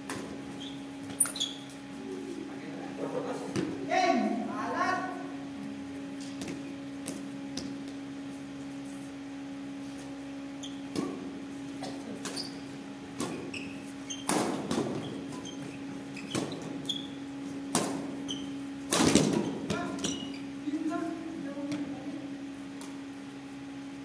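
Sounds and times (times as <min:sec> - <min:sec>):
steady low hum: 0:00.0 - 0:24.0
shoe squeaks on court floor: 0:00.5 - 0:01.8, 0:10.6 - 0:10.9, 0:12.3 - 0:17.2, 0:18.2 - 0:18.6, 0:19.4 - 0:20.5
racket striking shuttlecock: 0:14.2 - 0:15.4, 0:17.7 - 0:18.1, 0:18.9 - 0:19.8.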